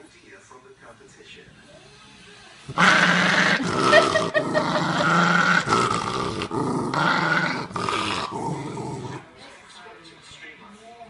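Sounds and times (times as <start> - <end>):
dog growling: 2.7 - 9.3.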